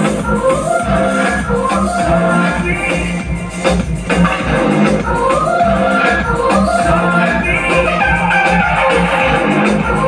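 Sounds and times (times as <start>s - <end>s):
pop dance music: 0.0s - 10.0s.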